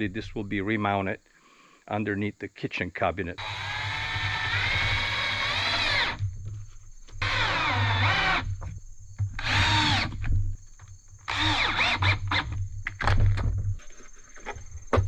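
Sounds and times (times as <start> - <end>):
cordless drill whining: 3.4 - 6.2, 7.2 - 8.7, 9.4 - 10.3, 11.3 - 12.6.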